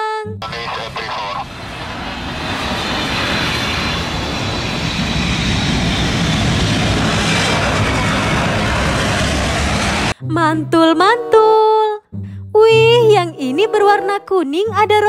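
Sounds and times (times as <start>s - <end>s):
jet airliner landing: 0.4s - 10.2s.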